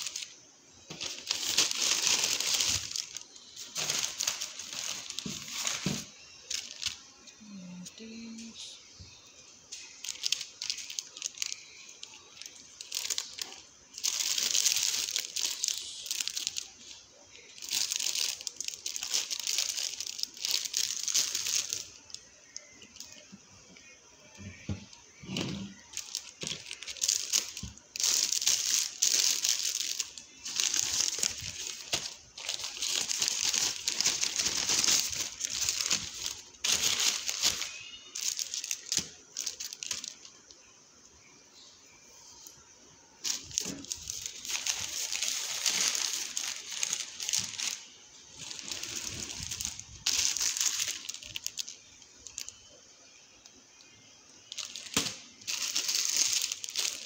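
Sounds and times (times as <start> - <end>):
plastic packaging crinkling: 0.0 - 40.7, 43.2 - 57.0.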